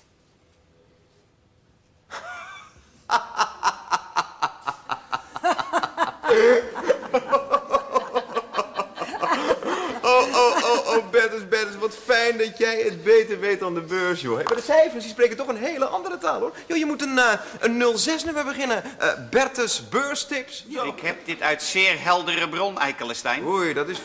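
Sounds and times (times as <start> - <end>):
people laughing hard: 2.1 - 11.5.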